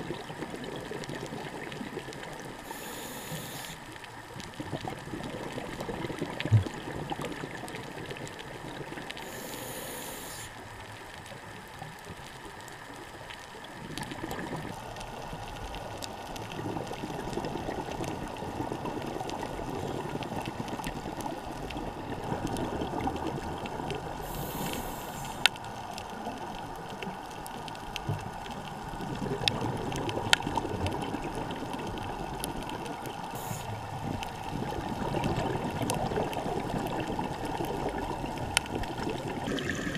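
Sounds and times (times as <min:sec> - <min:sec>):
muffled underwater rush: 0:00.0 - 0:39.9.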